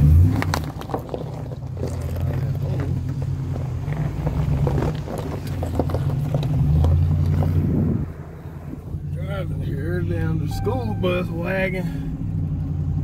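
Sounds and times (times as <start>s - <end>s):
truck engine droning: 5.5s - 13.0s.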